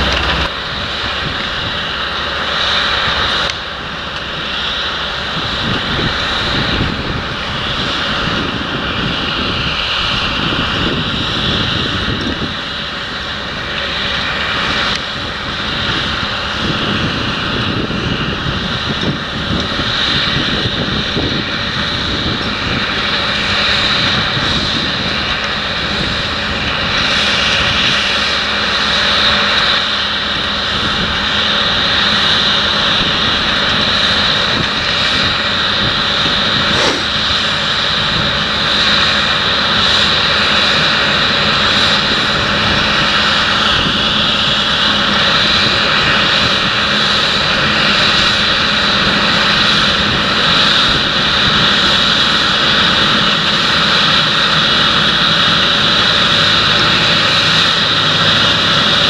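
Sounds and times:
high whine: 0.0 - 15.9, 35.6 - 39.0
tractor diesel engine running: 0.0 - 59.0.

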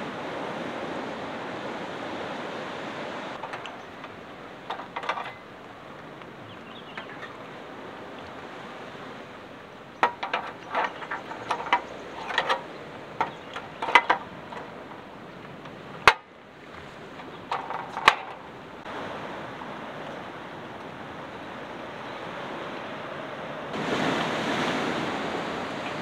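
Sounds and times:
surf rushing: 0.0 - 26.0
metal canister clicks and knocks: 3.4 - 5.4, 10.0 - 15.1, 16.0 - 16.3, 17.2 - 18.6.

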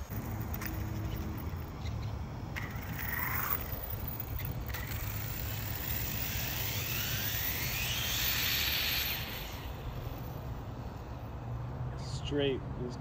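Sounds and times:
electric motor whine: 0.0 - 11.4.

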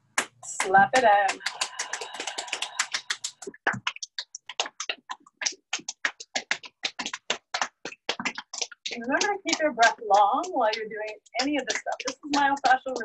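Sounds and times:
hands slapping bare foot: 0.1 - 13.0.

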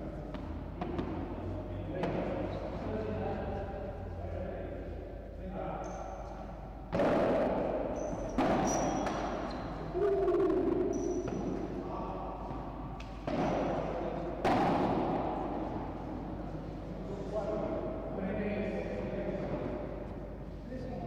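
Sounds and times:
ball bouncing off court: 0.3 - 1.4, 6.9 - 9.8, 10.9 - 11.8, 12.4 - 15.7
padel ball struck by rackets: 6.9 - 9.5, 14.4 - 15.6.

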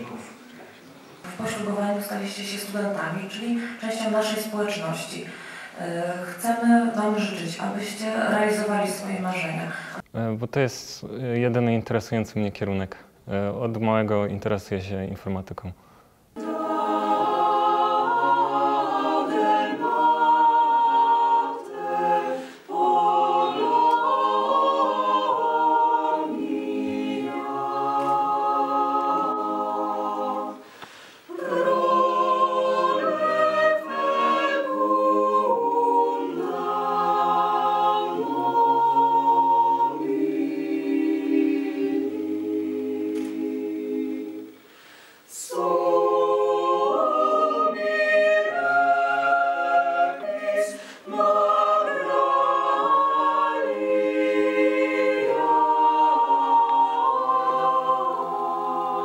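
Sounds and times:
mixed choir singing a cappella: 0.0 - 10.0, 16.4 - 59.0.

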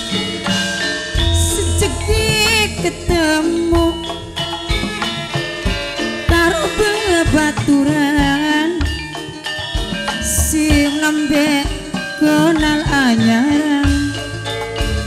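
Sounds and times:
gongs and metallophones ringing: 0.0 - 15.0
low drum strokes: 1.2 - 4.1
woman singing: 1.3 - 4.3, 6.3 - 9.2, 10.1 - 14.3.

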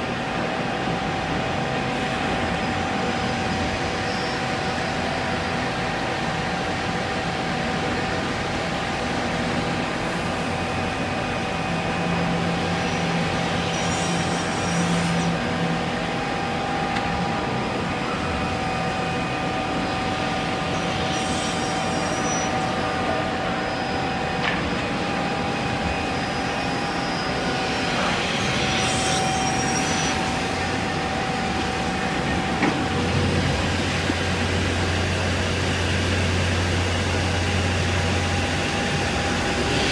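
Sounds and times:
panel saw machine drone: 10.6 - 39.9
saw cutting with hiss: 12.9 - 15.5, 20.7 - 23.8, 26.0 - 31.9.

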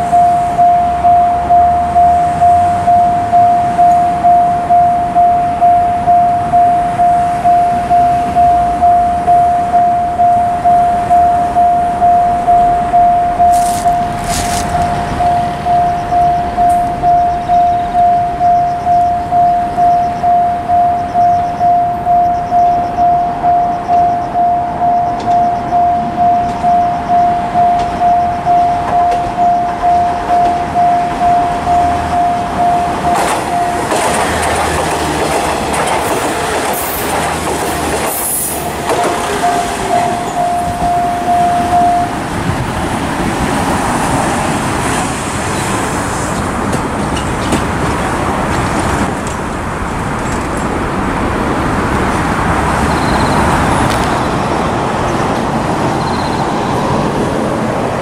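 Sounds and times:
level crossing warning bell: 0.0 - 45.6
train rumbling past: 0.0 - 58.0
wheels clattering on rail: 2.3 - 58.0.

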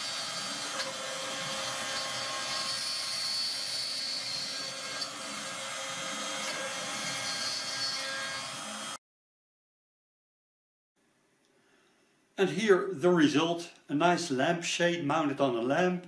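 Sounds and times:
milling machine cutting plastic: 0.0 - 9.0.

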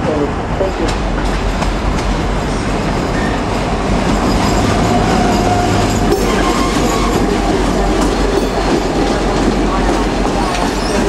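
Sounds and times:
diesel locomotive engine rumbling: 0.0 - 11.0
wheels clicking on rails: 0.9 - 11.0.

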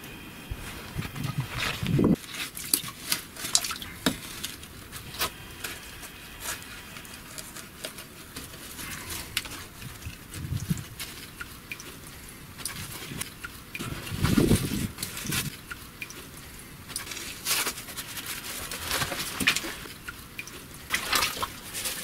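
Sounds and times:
wet squelches: 8.4 - 22.0.

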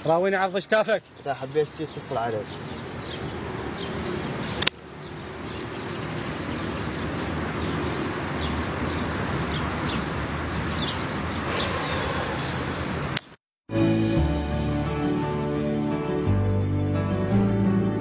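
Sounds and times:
distant traffic: 0.0 - 13.4
high bird chirps: 1.1 - 13.4.

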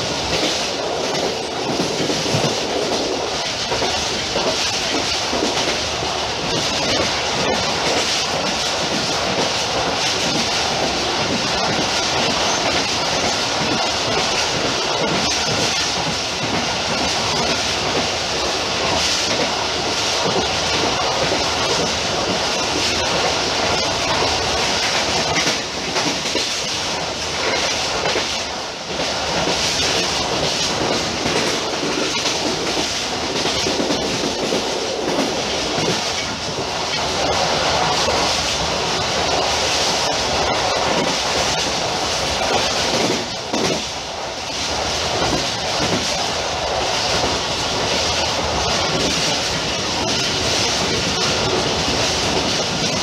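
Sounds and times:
train wheels on rails: 0.0 - 53.0
clatter over rail joints: 29.3 - 37.3, 42.4 - 44.0.

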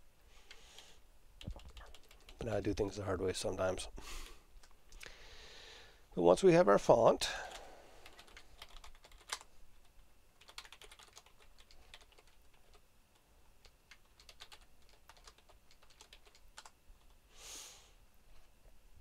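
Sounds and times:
typing on computer keyboard: 1.4 - 2.4, 8.0 - 9.5, 10.4 - 12.8, 13.6 - 17.2.

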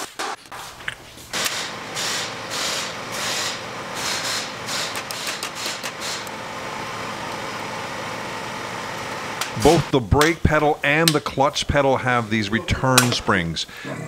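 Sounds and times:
rotary tool scrubbing metal: 1.4 - 6.3.

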